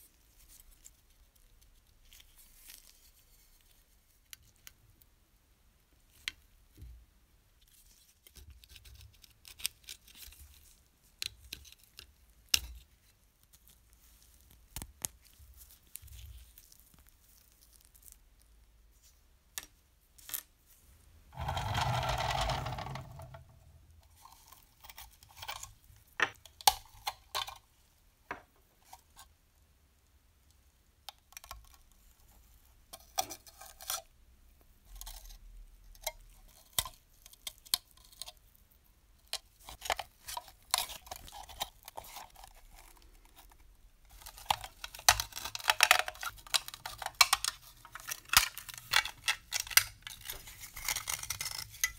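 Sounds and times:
rough noise: 21.3s - 23.9s
metal scraping: 21.4s - 23.7s.

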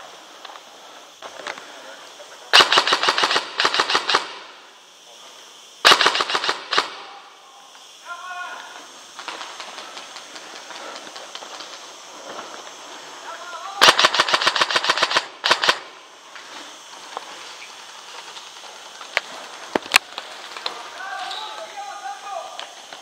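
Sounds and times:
airsoft gun firing bursts: 2.5s - 4.6s, 5.8s - 7.1s, 13.8s - 16.0s
faint rapid shots: 2.5s - 4.7s, 5.8s - 7.3s, 9.1s - 12.0s, 13.6s - 16.0s.

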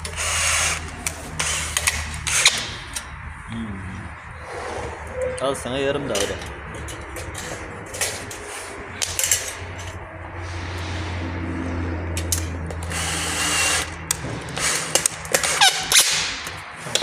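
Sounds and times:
cordless drill driving screw: 0.0s - 2.8s, 12.8s - 14.0s
sharp clicks and metal knocks: 6.1s - 8.4s, 9.0s - 10.0s, 12.1s - 13.0s.

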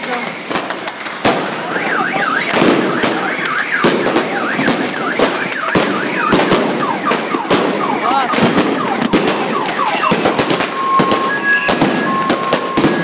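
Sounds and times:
firecrackers banging: 0.0s - 13.0s
shrill swooping tone: 9.8s - 13.0s.

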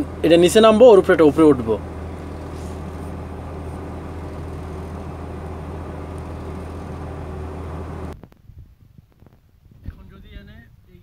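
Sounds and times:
crane engine humming: 0.0s - 8.2s.

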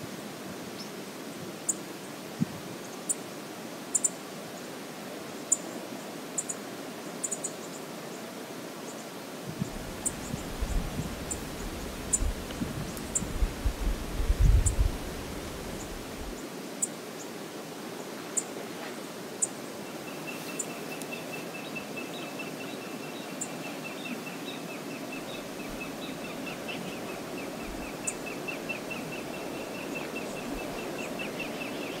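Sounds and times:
wind rumbling on microphone: 9.4s - 16.4s.

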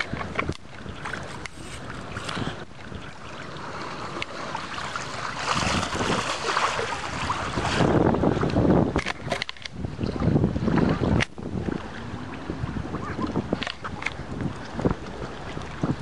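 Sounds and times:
wind on microphone: 0.0s - 16.0s
water washing against concrete: 4.2s - 9.4s.

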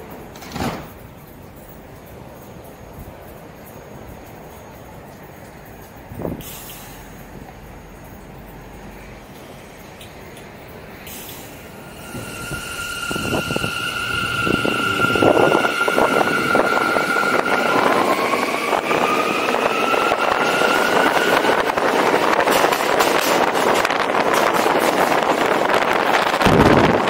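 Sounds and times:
train rumble: 0.0s - 27.0s
wind noise on microphone: 6.0s - 6.6s, 11.9s - 27.0s
traction motors whining: 7.3s - 22.5s.

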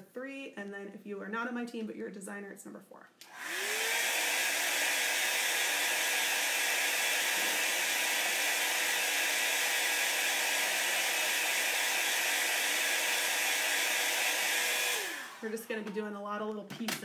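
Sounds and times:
heat tool blowing whir: 3.2s - 15.7s.

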